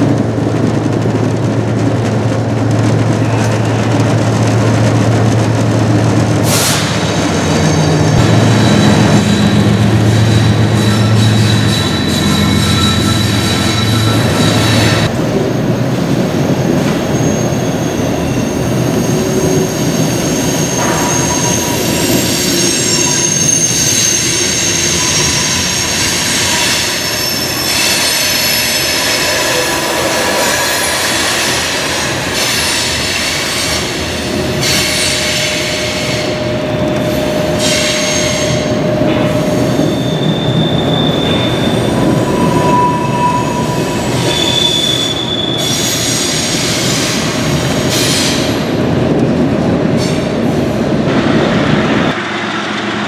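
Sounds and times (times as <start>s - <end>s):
train wheels rolling on rails: 0.0s - 53.0s
high thin wheel squeals: 7.4s - 15.1s, 17.1s - 29.7s, 34.6s - 47.3s.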